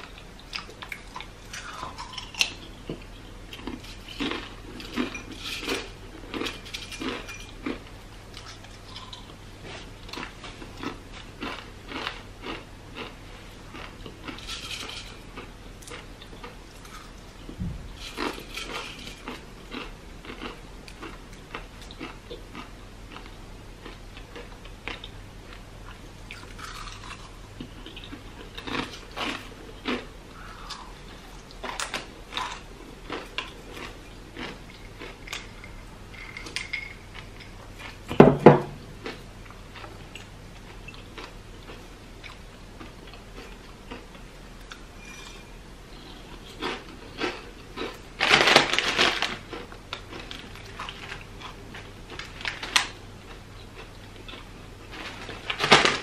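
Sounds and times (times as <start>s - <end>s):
crunchy chips chewing: 0.0s - 38.2s, 39.0s - 45.3s, 45.9s - 56.0s
chips clinking in glass bowl: 18.0s - 19.8s, 31.7s - 37.5s.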